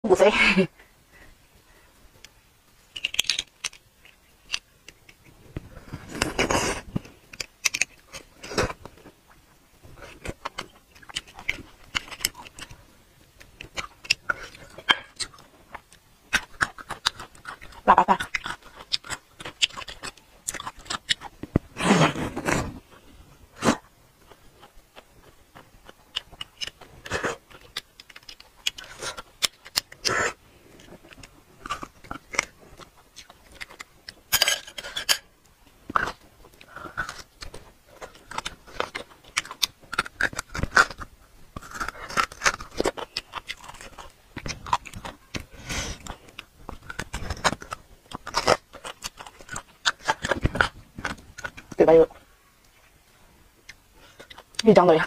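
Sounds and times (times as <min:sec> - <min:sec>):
chewing and sucking: 0:01.1 - 0:54.8
utensil scraping bone: 0:09.9 - 0:35.3, 0:35.9 - 0:52.2.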